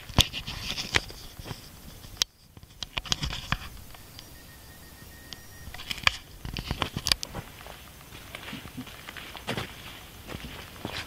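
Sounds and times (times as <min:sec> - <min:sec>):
faint steady whistle: 0:03.5 - 0:08.1
footsteps on gravel: 0:06.5 - 0:11.0.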